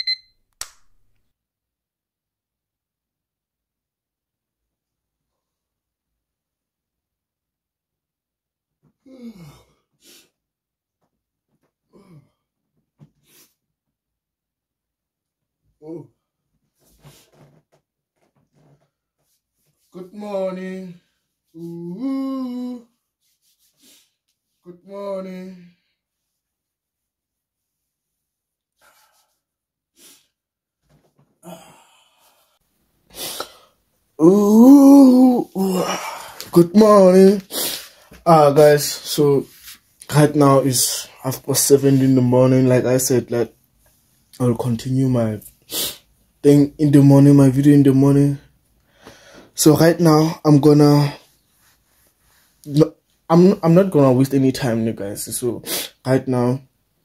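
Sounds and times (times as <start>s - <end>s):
man yawning: 9.0s - 9.8s, 21.6s - 22.9s, 31.4s - 32.4s, 34.2s - 36.5s
person sighing softly: 9.0s - 9.8s, 11.9s - 12.4s, 31.4s - 32.6s, 33.2s - 36.5s
short breath out: 31.4s - 33.8s, 48.9s - 49.6s.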